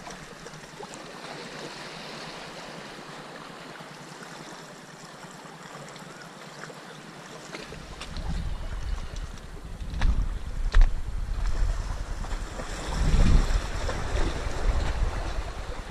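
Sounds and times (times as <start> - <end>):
sea water washing against boulders: 7.0 - 15.9
wind buffeting microphone: 7.7 - 15.9.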